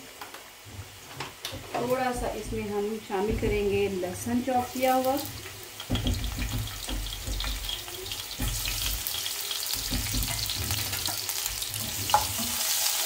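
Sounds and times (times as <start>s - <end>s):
garlic sizzling in hot oil: 0.0s - 13.0s
spatula tapping pan: 5.1s - 12.6s.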